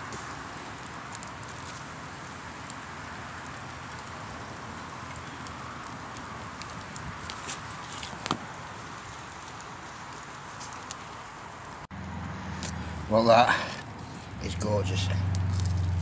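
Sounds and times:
campfire crackling: 0.0s - 16.0s
fire hiss: 0.0s - 16.0s
small pops: 5.1s - 8.6s.

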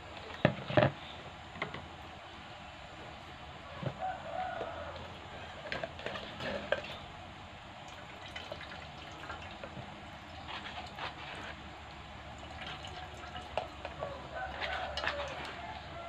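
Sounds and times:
wet squelching of grated coconut: 10.2s - 16.0s.

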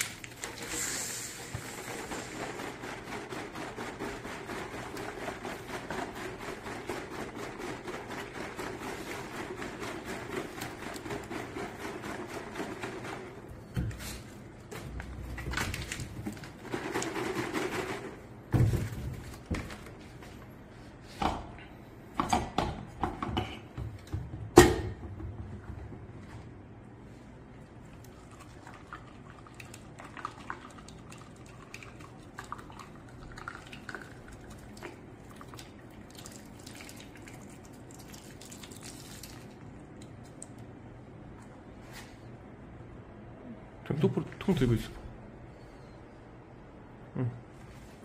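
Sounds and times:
plastic jug shaken: 1.6s - 13.5s, 15.1s - 19.8s.

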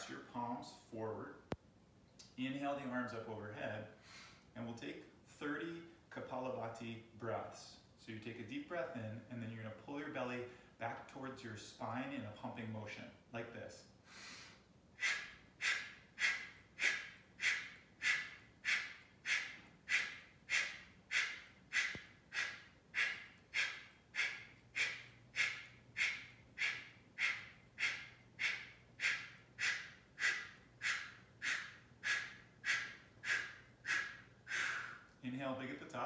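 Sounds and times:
man exhaling sharply through nose: 14.0s - 35.2s.

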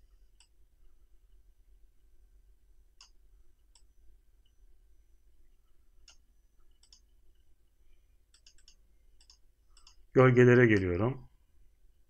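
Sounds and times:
computer mouse clicks: 0.3s - 0.6s, 3.0s - 4.6s, 6.0s - 7.5s, 8.3s - 10.1s.

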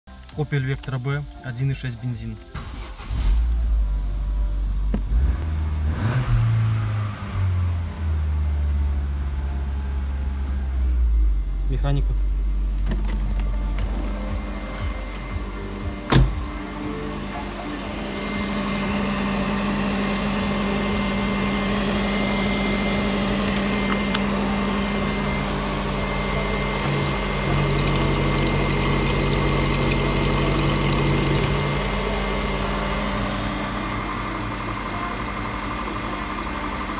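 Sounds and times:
petrol engine idling: 13.4s - 36.9s.

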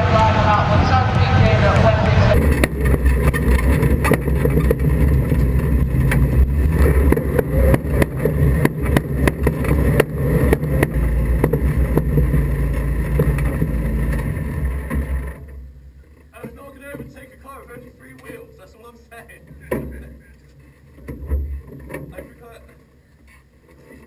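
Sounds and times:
car engine at low revs: 0.0s - 18.2s
bodywork knocks and rattles: 2.4s - 15.4s.

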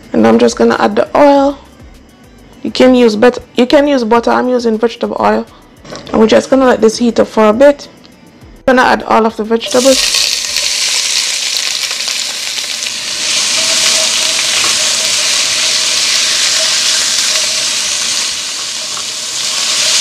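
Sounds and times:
vegetables sizzling in hot oil: 9.7s - 20.0s.

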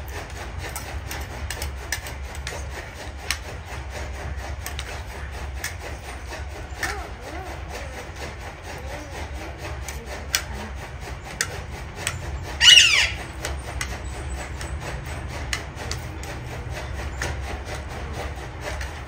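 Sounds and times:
parakeet squawk: 12.5s - 13.4s.

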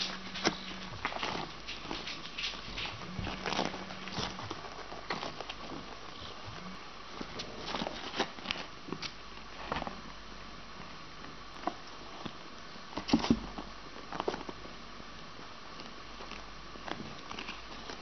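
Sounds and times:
animals rustling on bedding: 0.0s - 8.8s
faint steady hum: 0.0s - 18.0s.

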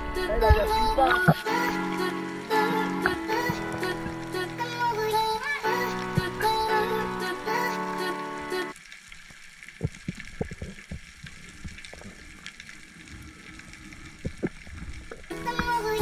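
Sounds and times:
music: 0.0s - 8.7s, 15.3s - 16.0s
soft underwater clicks and knocks: 9.6s - 12.8s, 14.2s - 16.0s.

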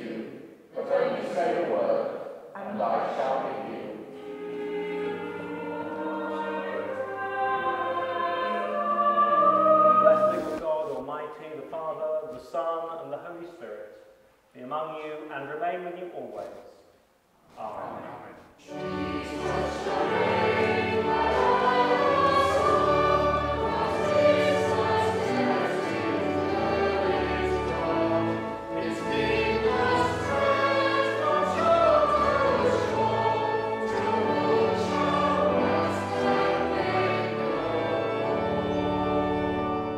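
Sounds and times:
congregation and choir singing hymn: 0.0s - 11.0s, 17.6s - 39.9s
pipe organ: 4.2s - 13.6s, 18.6s - 39.9s.

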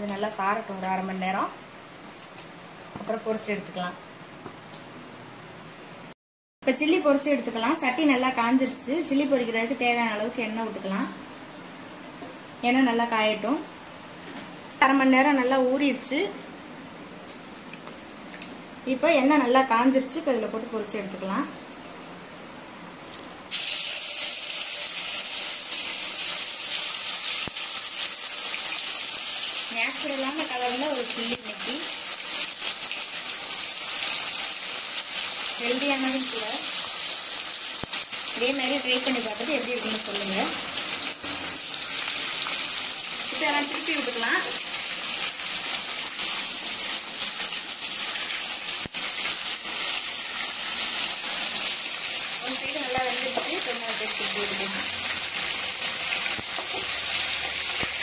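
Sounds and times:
chicken deep-frying in hot oil: 23.0s - 58.0s.

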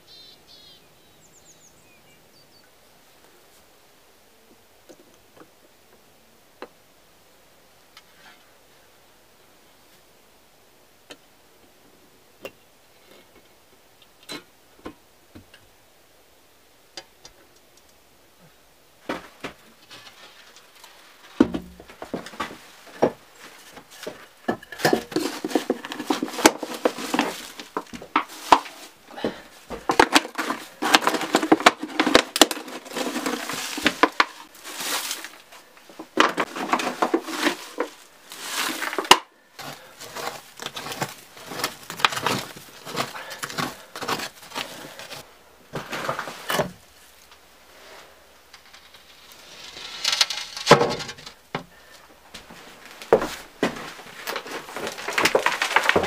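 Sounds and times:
rubble rattling and scraping: 19.0s - 47.3s, 48.4s - 51.9s, 52.5s - 56.0s.

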